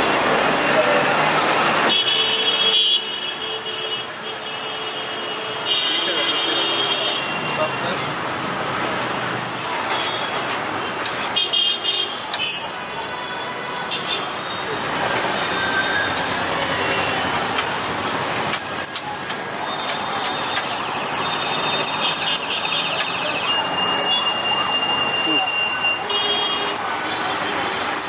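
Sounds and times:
road traffic noise: 0:00.0 - 0:28.0
car horns tooting: 0:01.9 - 0:08.1, 0:19.5 - 0:28.0.

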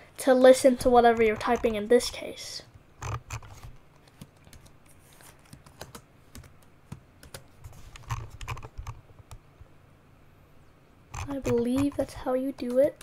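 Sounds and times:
keyboard typing: 0:01.0 - 0:01.8, 0:03.0 - 0:04.8, 0:05.4 - 0:09.5, 0:11.1 - 0:12.9.

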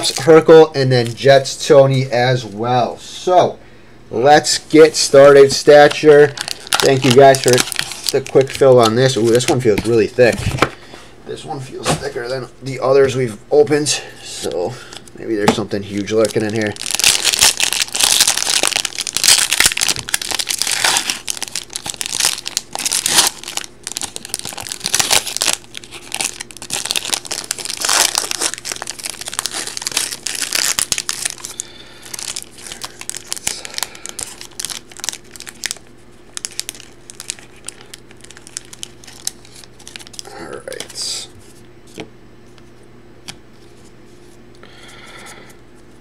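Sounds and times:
foil wrapper crinkling and tearing: 0:00.0 - 0:00.6, 0:05.1 - 0:10.6, 0:15.8 - 0:41.2.

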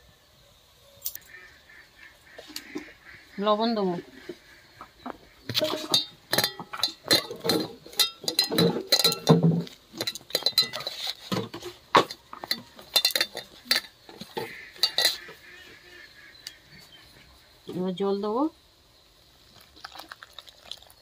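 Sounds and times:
fingers clinking on steel bowl: 0:05.9 - 0:11.2, 0:12.1 - 0:14.0, 0:14.8 - 0:15.2.

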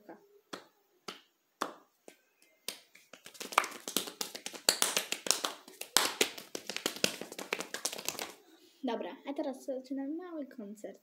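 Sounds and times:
hands slapping and clapping: 0:00.5 - 0:08.4.

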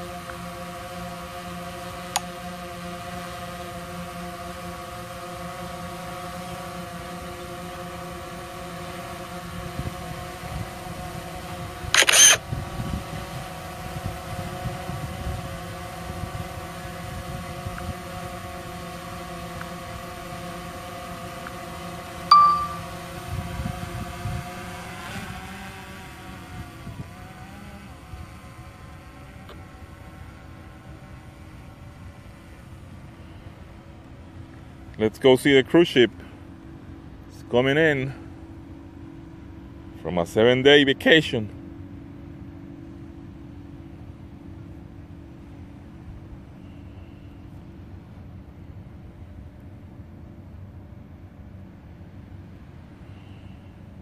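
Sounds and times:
drone propellers humming: 0:00.0 - 0:54.0
sharp click: 0:12.0 - 0:12.4
brief beep: 0:22.3 - 0:22.9.

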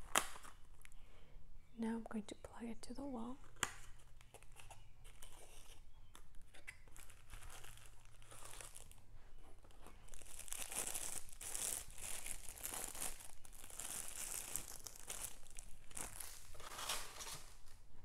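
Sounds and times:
packaging rustling and clicking: 0:03.6 - 0:17.8
plastic bag of stones crinkling: 0:03.8 - 0:17.8.

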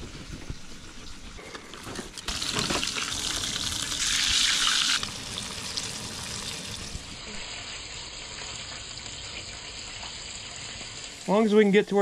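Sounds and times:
fish sizzling in oil: 0:02.3 - 0:11.4.

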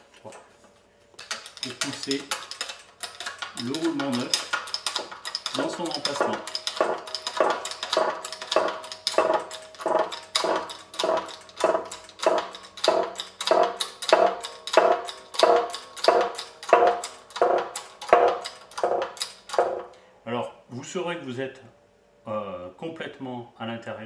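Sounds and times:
hydraulic jack clacking and squeaking: 0:01.2 - 0:20.0.

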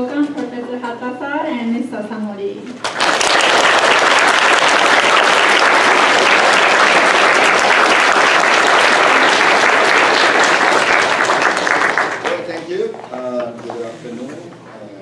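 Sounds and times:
audience applauding: 0:02.8 - 0:13.0.

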